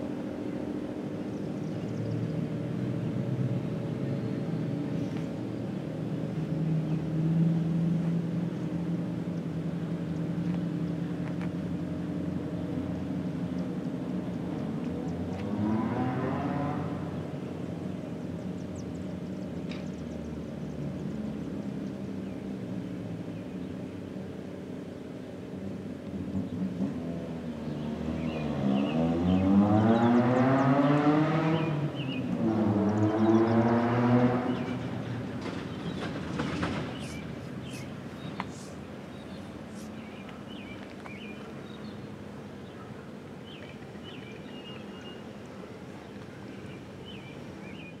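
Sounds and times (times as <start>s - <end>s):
small birds chirping: 0.2s - 7.1s, 17.1s - 25.3s, 27.4s - 48.0s.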